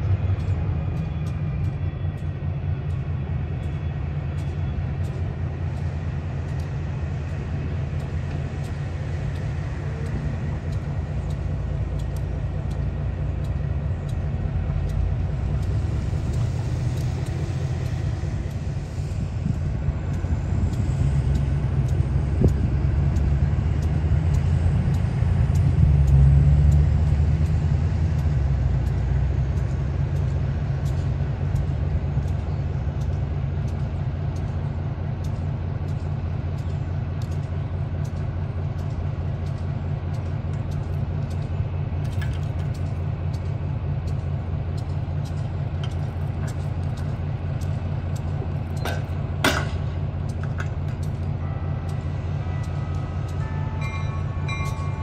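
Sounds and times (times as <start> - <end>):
locomotive diesel engine rumbling: 0.0 - 55.0.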